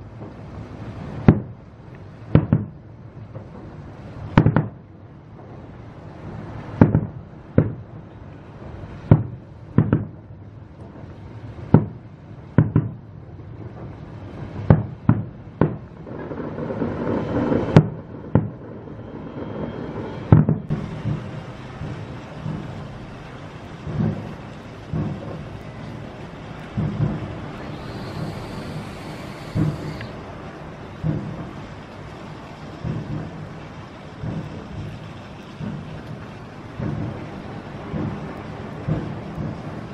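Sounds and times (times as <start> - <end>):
steady rushing noise: 0.0 - 39.9
rumbling: 7.0 - 39.9
firework shell bursts: 19.6 - 31.6.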